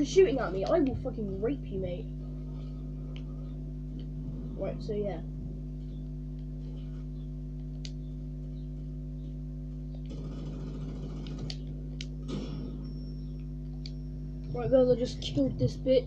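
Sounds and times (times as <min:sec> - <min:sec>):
low electrical hum: 0:00.0 - 0:16.0
faint sharp clicks: 0:07.6 - 0:08.0.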